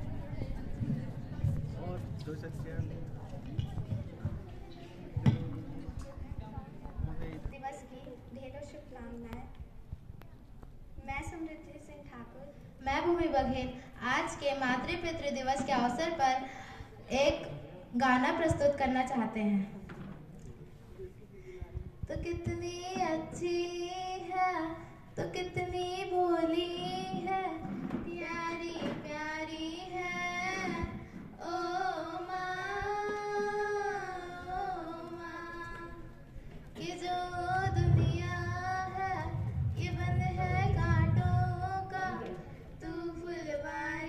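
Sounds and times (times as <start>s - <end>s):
girls singing: 22.2s - 44.0s
low rumble: 36.9s - 43.3s.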